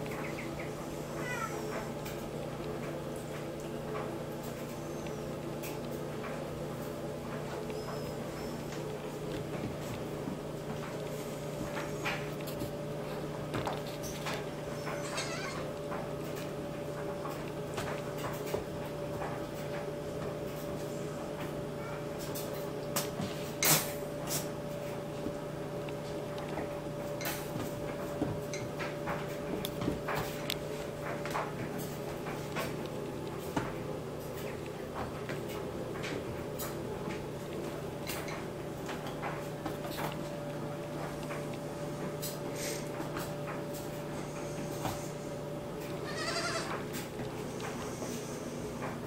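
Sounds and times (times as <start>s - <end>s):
steady low hum: 0.0s - 49.0s
goat kid bleating: 1.1s - 1.8s, 15.0s - 15.7s, 46.0s - 46.8s.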